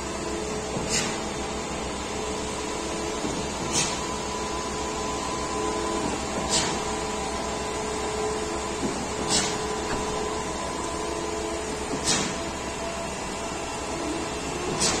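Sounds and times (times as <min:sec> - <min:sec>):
concrete pump running: 0:00.0 - 0:15.0
pump short sharp bursts: 0:00.8 - 0:01.3, 0:03.6 - 0:04.1, 0:06.4 - 0:07.0, 0:09.1 - 0:10.4, 0:11.9 - 0:12.6, 0:14.6 - 0:15.0.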